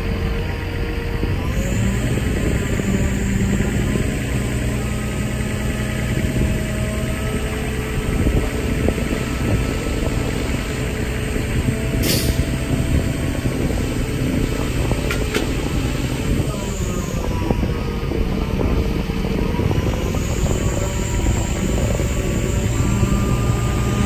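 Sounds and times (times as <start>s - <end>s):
diesel engine running: 0.0s - 24.0s
wind buffeting microphone: 0.0s - 24.0s
short hiss: 12.0s - 12.4s.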